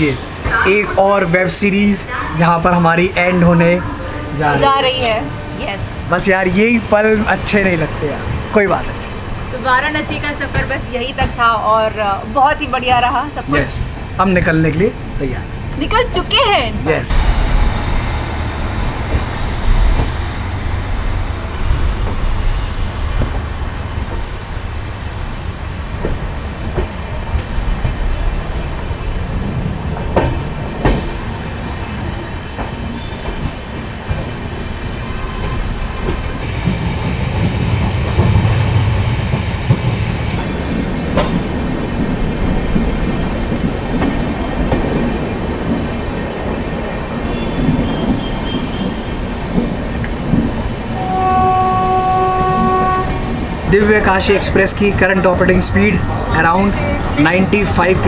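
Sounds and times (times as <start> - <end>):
high wheel squeal: 0.0 - 1.2, 15.1 - 16.0, 17.2 - 28.6, 47.1 - 49.6
train rumbling on track: 0.0 - 58.0.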